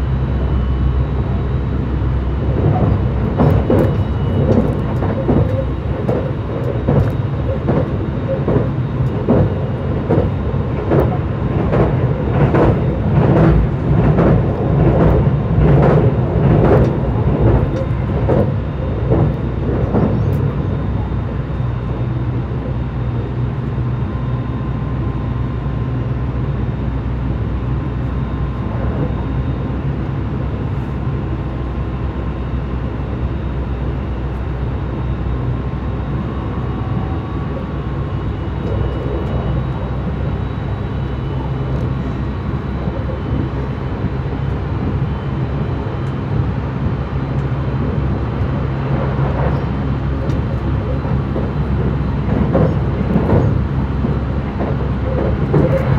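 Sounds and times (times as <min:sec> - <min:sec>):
train wheels rumbling on rail: 0:00.0 - 0:55.9.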